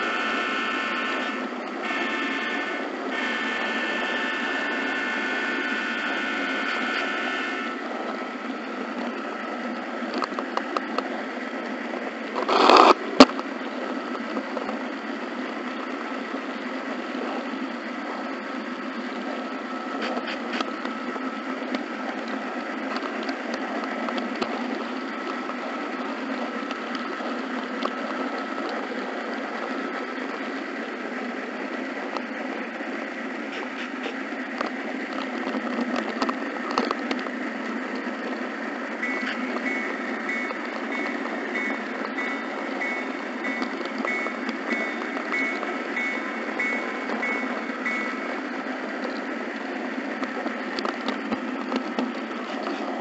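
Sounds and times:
thin steady whine: 0:00.0 - 0:53.0.

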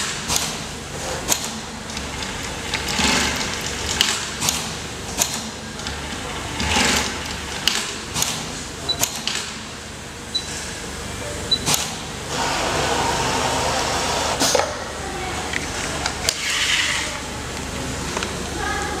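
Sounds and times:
sharp mechanical clicks: 0:01.3 - 0:02.1, 0:03.8 - 0:05.5, 0:07.2 - 0:09.6
sewing machine running: 0:01.4 - 0:04.7, 0:06.5 - 0:07.4, 0:12.3 - 0:14.5.

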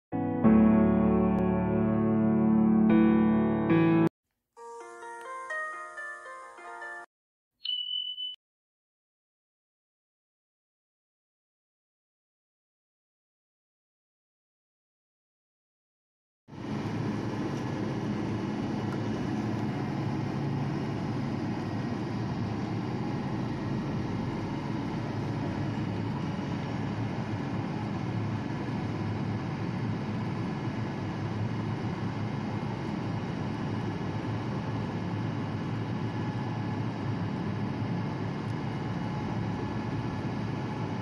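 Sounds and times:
large engine droning: 0:16.5 - 0:41.0.

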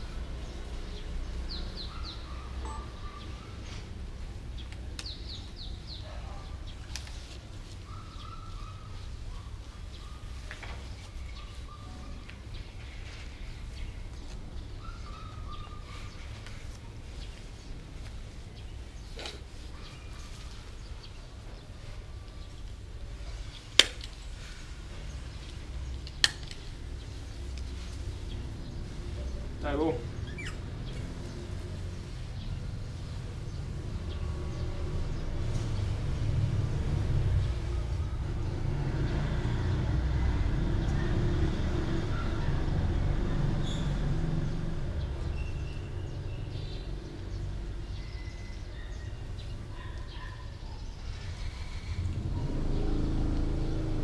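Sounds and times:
high falling chirps: 0:02.6 - 0:03.4.

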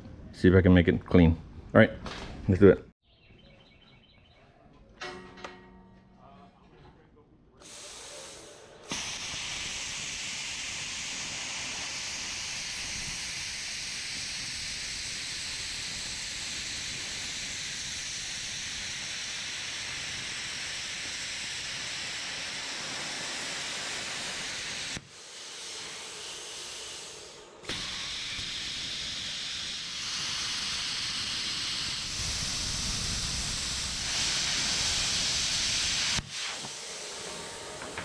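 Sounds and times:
plasma cutter hissing: 0:07.6 - 0:38.0.

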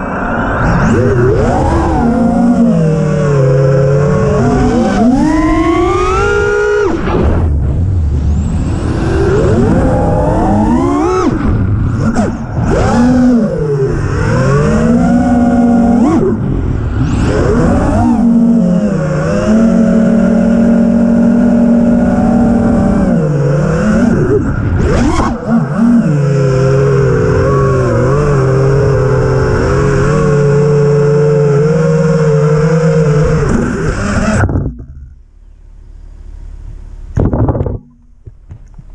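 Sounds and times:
quadcopter motors whining: 0:00.0 - 0:07.1, 0:08.2 - 0:34.9.

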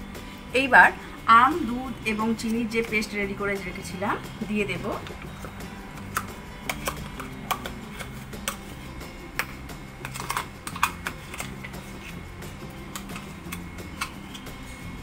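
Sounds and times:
hot oil crackling and popping: 0:09.3 - 0:12.2.

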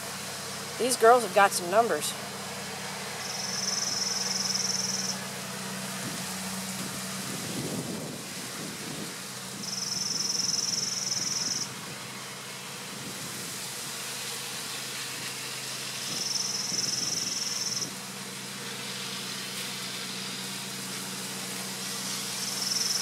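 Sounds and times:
high insect trill: 0:03.2 - 0:05.2, 0:09.6 - 0:11.7, 0:16.1 - 0:17.9, 0:22.4 - 0:23.0.

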